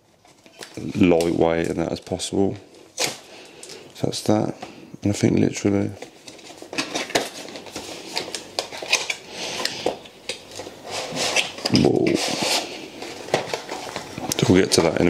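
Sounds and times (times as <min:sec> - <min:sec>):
cardboard scraping and rustling: 0:06.0 - 0:15.0.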